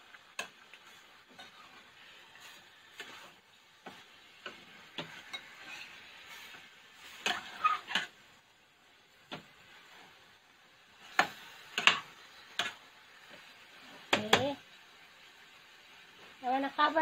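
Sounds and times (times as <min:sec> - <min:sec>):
metal spoon scraping frying pan: 0:00.3 - 0:08.2, 0:11.0 - 0:12.8.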